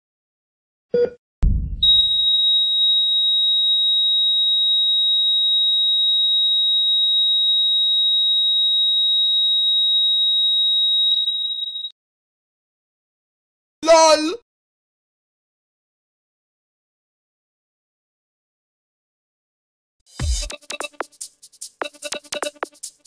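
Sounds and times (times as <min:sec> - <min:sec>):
heart monitor flatline beep: 0:01.8 - 0:02.6.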